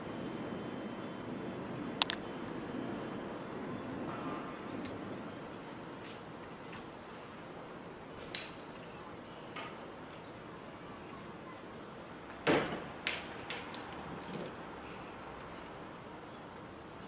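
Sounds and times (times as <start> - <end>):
steady background hum: 0.0 - 17.0
sharp clicks: 2.0 - 2.2.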